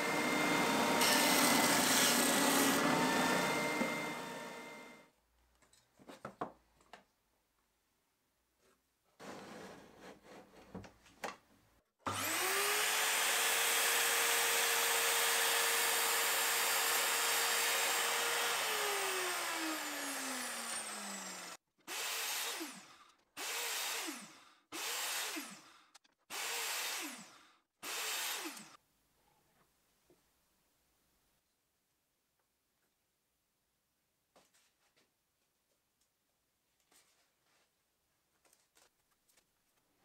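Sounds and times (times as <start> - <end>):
mitre saw motor whining: 0.0 - 5.0, 12.1 - 25.7.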